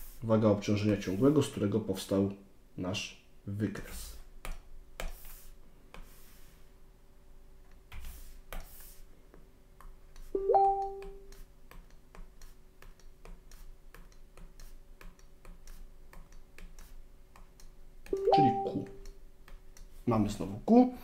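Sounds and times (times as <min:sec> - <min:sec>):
faint steady hum: 0:00.0 - 0:21.0
stylus tapping on tablet: 0:09.8 - 0:19.8.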